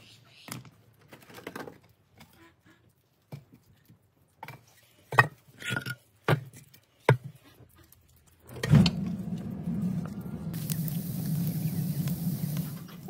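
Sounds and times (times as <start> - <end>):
fire burning with low rumble: 8.4 - 13.0.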